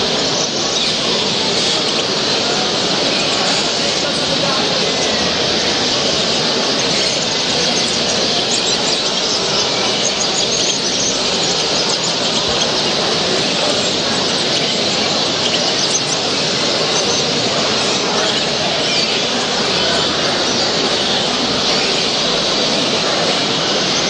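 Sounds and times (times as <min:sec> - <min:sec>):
caged birds chirping: 0:00.0 - 0:24.0
loud background din: 0:00.0 - 0:24.0.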